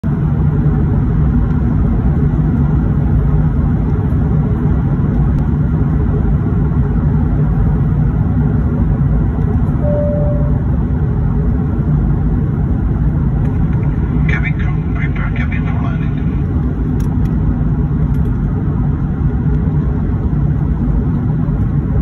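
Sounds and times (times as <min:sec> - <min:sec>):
airliner cabin engine roar: 0:00.0 - 0:22.0
cabin chime: 0:09.8 - 0:10.6.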